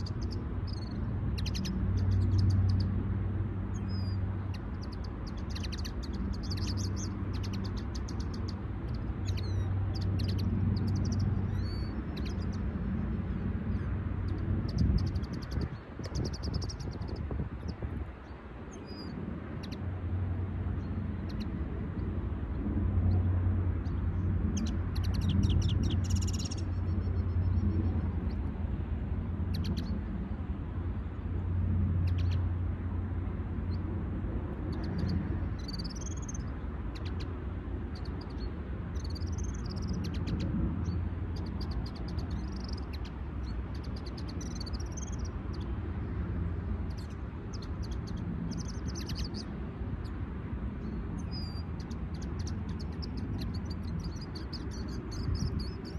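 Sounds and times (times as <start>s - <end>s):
bird trill: 0.0s - 2.9s, 3.7s - 12.6s, 24.5s - 27.7s, 34.7s - 37.2s, 37.9s - 45.7s, 46.9s - 49.5s, 50.8s - 55.9s
songbirds chirping: 0.0s - 55.9s.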